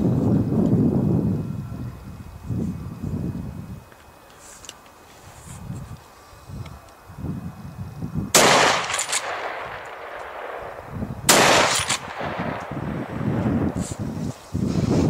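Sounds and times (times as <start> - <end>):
rifle shots with echo: 8.4 - 13.6.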